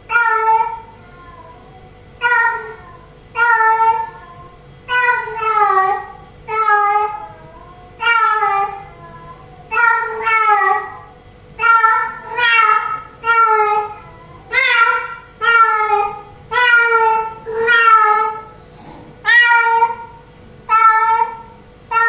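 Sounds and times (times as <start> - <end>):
cat meowing loudly: 11.6 - 18.6, 19.2 - 20.1.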